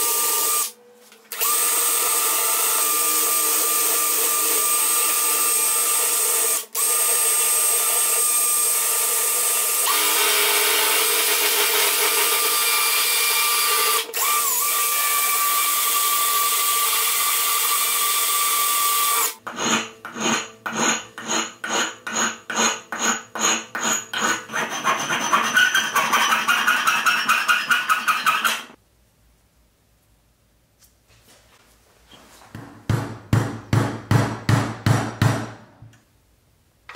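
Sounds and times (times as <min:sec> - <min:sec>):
hand file strokes on metal: 0:19.5 - 0:28.8.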